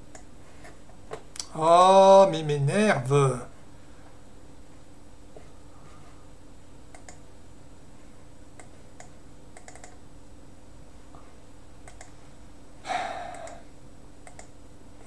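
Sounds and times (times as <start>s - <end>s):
faint steady hum: 0.0s - 15.0s
mouse and keyboard clicks: 6.9s - 7.2s, 8.6s - 10.0s, 11.8s - 12.1s, 14.2s - 14.5s
breathy noise rush: 12.8s - 13.8s.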